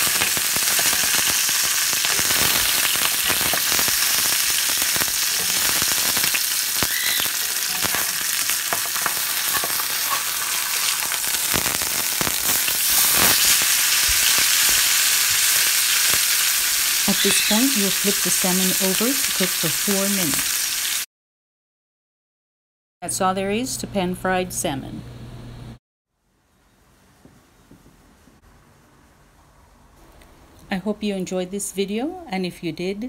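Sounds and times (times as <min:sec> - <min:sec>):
fish sizzling in oil: 0:00.0 - 0:21.1
metal spatula scraping pan: 0:07.4 - 0:11.1.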